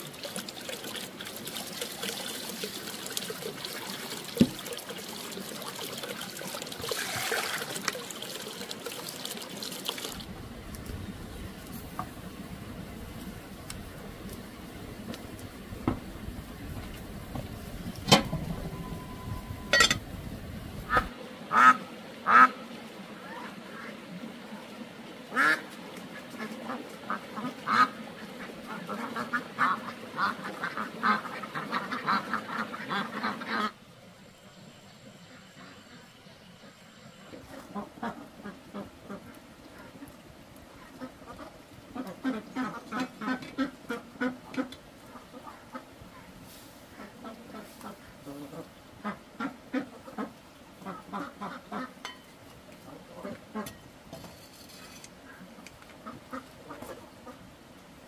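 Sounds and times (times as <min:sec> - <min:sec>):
ducks quacking: 0:26.2 - 0:33.8, 0:46.9 - 0:52.0, 0:55.3 - 0:57.4.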